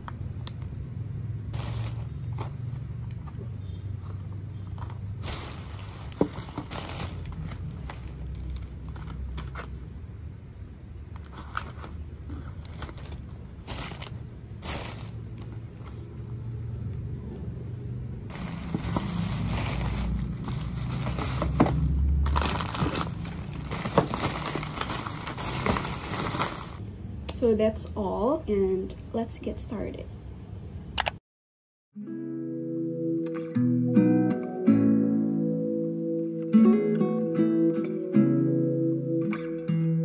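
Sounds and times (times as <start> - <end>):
plastic bag rustling: 1.5 - 2.9, 4.9 - 9.8, 11.2 - 16.1, 18.3 - 26.8.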